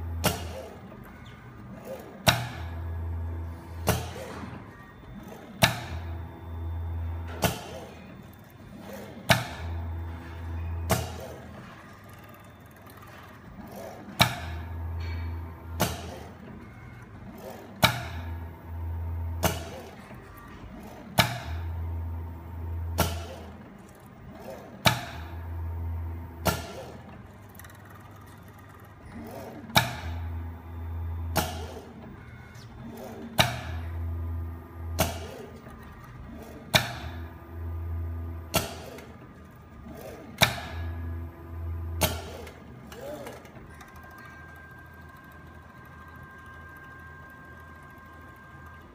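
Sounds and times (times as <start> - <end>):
machine clicking: 0.1 - 48.9.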